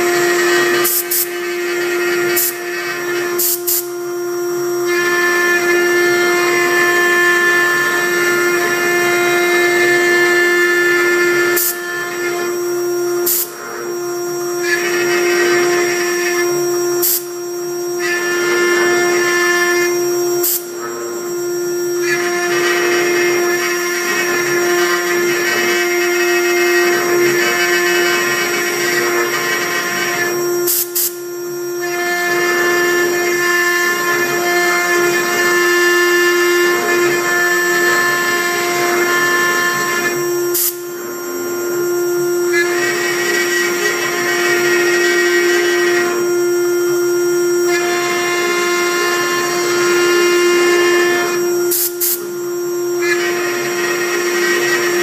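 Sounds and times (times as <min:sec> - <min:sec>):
cnc router spindle whine: 0:00.0 - 0:55.0
bit cutting wood: 0:18.0 - 0:31.2, 0:31.8 - 0:40.8, 0:42.5 - 0:46.4, 0:53.0 - 0:55.0.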